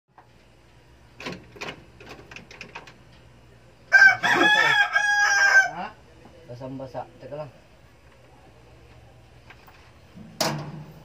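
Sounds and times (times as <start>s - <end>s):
rooster crowing: 3.9s - 6.0s.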